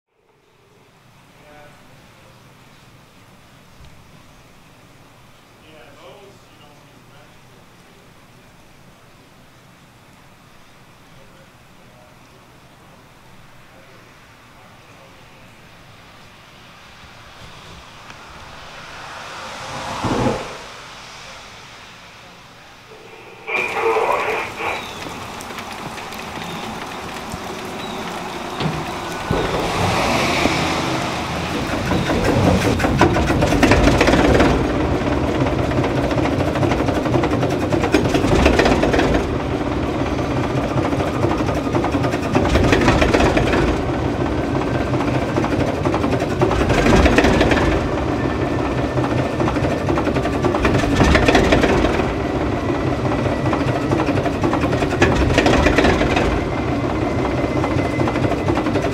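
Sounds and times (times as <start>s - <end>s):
diesel locomotive engine rumbling: 1.0s - 58.9s
bright rushing noise: 14.0s - 35.2s.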